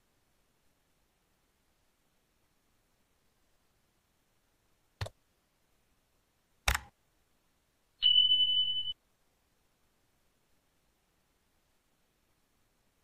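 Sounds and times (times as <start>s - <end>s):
mouse clicks: 6.6s - 6.9s.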